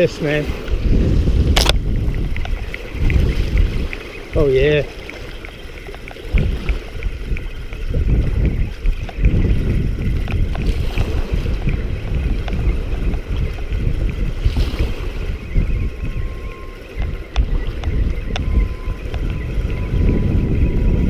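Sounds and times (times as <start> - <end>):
wind buffeting microphone: 0.0 - 21.0
faint ticks: 1.6 - 9.3.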